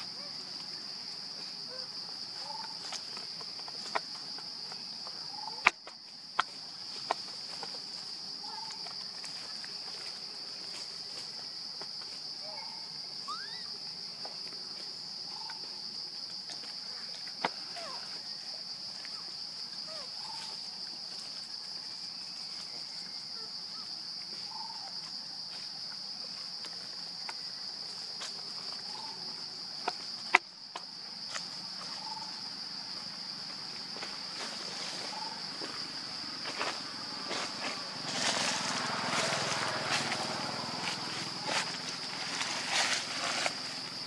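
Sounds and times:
faint short calls: 12.4 - 13.8
high-pitched insect drone: 12.4 - 14.1, 34.0 - 44.0
rustling: 36.5 - 44.0.

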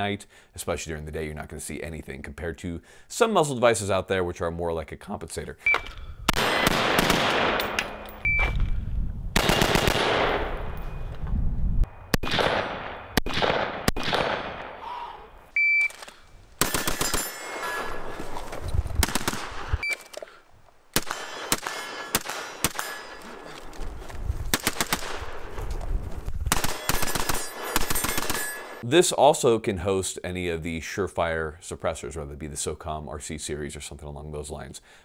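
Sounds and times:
short high beeps: 5.6 - 6.0, 8.2 - 8.6, 15.6 - 16.0
rifle gunshots: 6.3 - 8.0, 9.4 - 10.8, 12.1 - 14.8, 16.6 - 18.1, 19.0 - 19.8, 20.9 - 23.4, 24.5 - 25.5, 26.5 - 28.8.

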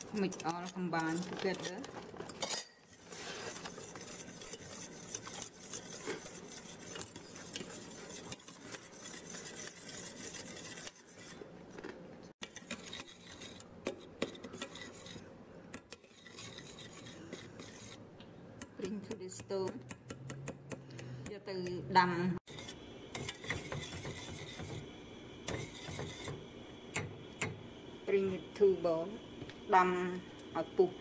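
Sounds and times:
whisk scraping metal pot: 0.0 - 11.6, 12.4 - 18.0, 22.4 - 27.6.

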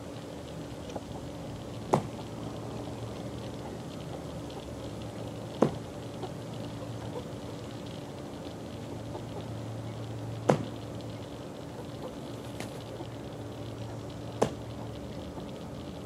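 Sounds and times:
steady low hum: 0.0 - 16.0
chickens pecking and scratching: 11.7 - 13.3.

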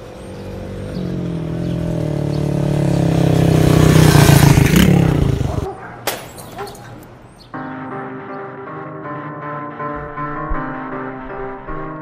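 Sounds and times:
dirt bike engine running: 0.0 - 5.7.

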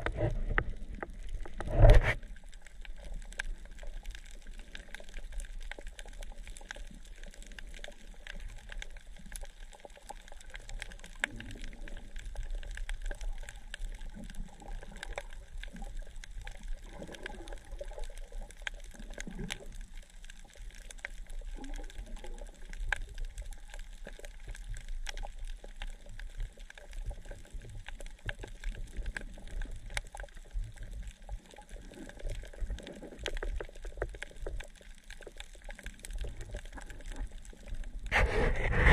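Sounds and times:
crackle and water noise: 0.0 - 38.9.

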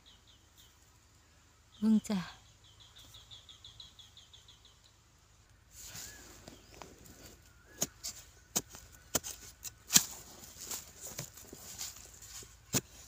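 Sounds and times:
metal blade scraping dry soil: 7.1 - 13.0.

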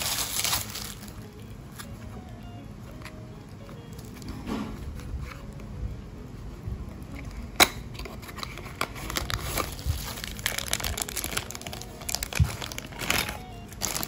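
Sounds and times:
plastic bag crinkling: 0.0 - 1.8, 8.2 - 14.0.

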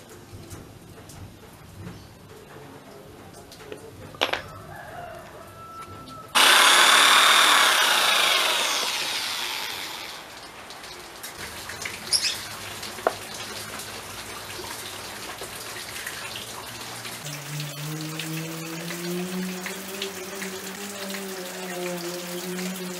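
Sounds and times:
wooden pieces knocking: 4.1 - 4.5
electric drill spinning down: 6.4 - 10.5.

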